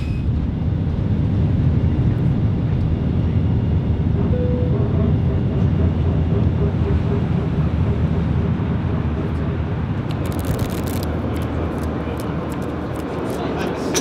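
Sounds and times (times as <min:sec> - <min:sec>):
airliner cabin engine rumble: 0:00.0 - 0:14.0
faint brief tone: 0:04.3 - 0:04.8.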